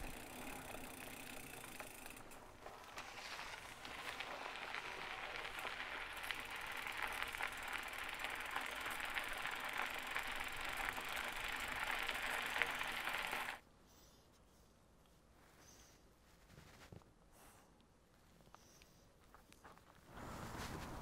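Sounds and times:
bike tyres rolling over gravel path: 0:00.0 - 0:13.6.

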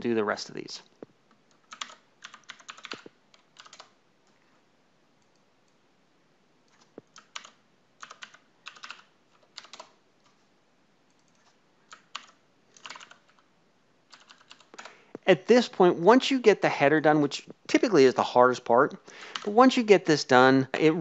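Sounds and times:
keyboard typing: 0:01.3 - 0:04.4, 0:06.7 - 0:10.4, 0:11.1 - 0:13.5, 0:14.1 - 0:15.3.

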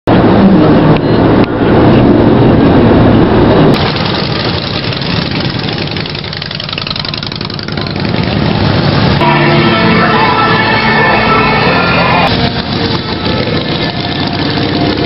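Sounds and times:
motorcycle engines passing slowly: 0:03.8 - 0:15.0.

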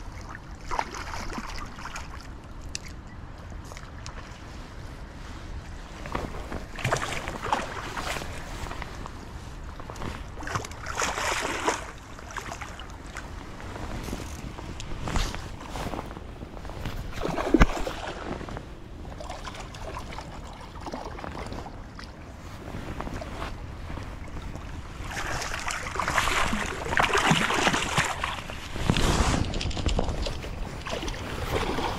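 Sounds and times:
fish splashing in shallow water: 0:00.0 - 0:02.6, 0:06.6 - 0:08.8, 0:10.2 - 0:13.6, 0:17.0 - 0:18.4, 0:24.2 - 0:31.9
fish thrashing and splashing: 0:25.1 - 0:31.9.

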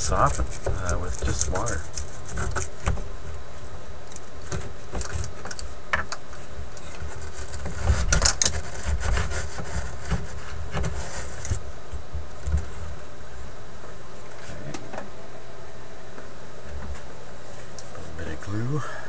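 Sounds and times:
scratchy rubbing of paper: 0:00.0 - 0:03.7, 0:06.4 - 0:11.6
paper rustling: 0:00.0 - 0:13.0
steady low hum: 0:00.0 - 0:19.0.

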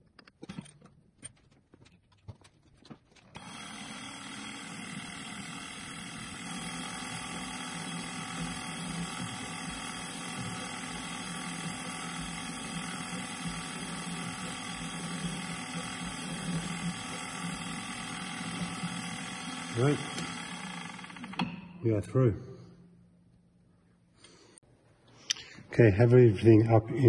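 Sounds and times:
drill bit cutting metal rod: 0:03.4 - 0:21.5
milling machine motor whine: 0:03.4 - 0:21.6.

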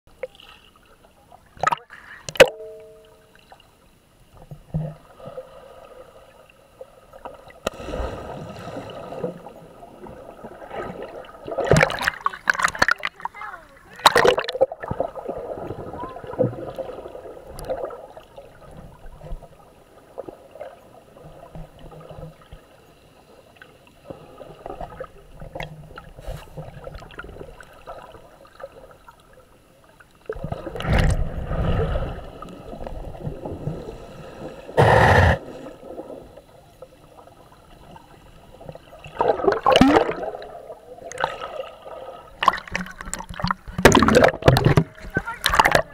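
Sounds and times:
underwater gurgling and sloshing: 0:00.1 - 0:45.9
rushes of water: 0:04.9 - 0:22.7, 0:30.2 - 0:45.9.

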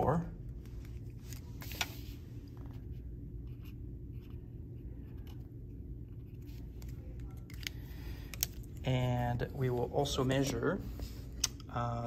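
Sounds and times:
steady low hum: 0:00.0 - 0:12.0
pen scratching on paper: 0:02.8 - 0:05.4.

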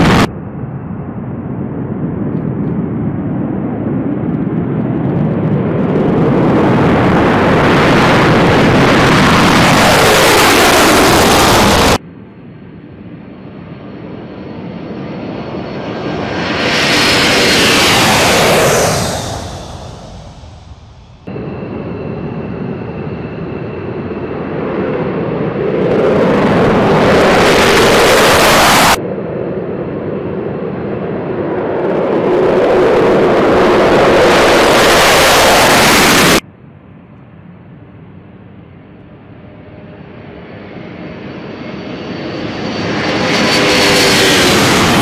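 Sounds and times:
jet engines droning: 0:00.0 - 0:45.0
jet takeoff roar: 0:00.0 - 0:45.0.

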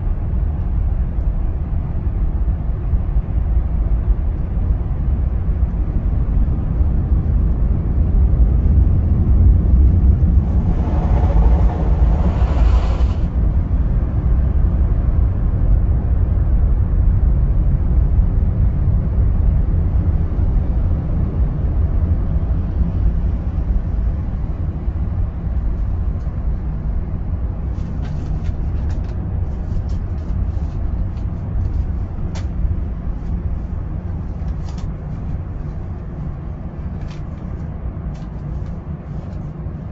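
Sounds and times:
car wash low rumble: 0:00.0 - 0:39.9.

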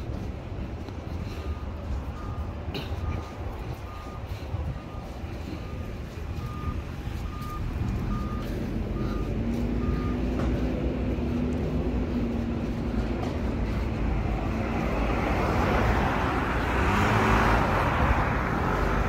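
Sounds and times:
street traffic rumble: 0:00.0 - 0:19.0
vehicle engine hum: 0:00.0 - 0:19.0
short electronic beeps: 0:01.5 - 0:10.3.

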